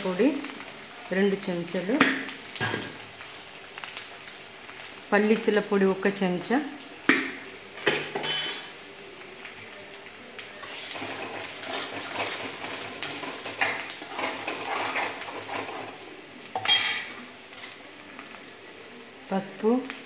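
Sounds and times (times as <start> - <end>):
metallic clink: 7.8 - 8.8
spoon clanking on pan: 7.8 - 8.8, 16.6 - 17.2
metal spoon scraping pan: 10.6 - 16.0.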